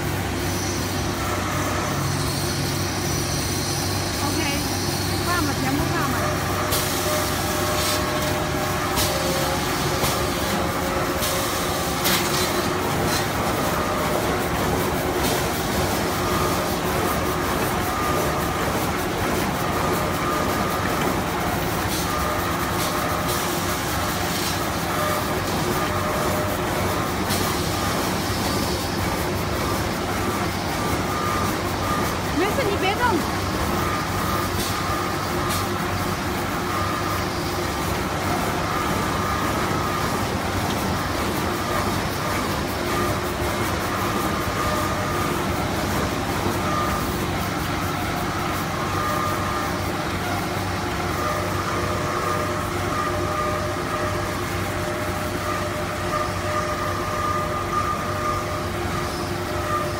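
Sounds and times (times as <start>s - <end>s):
faint machine whine: 0.0s - 59.9s.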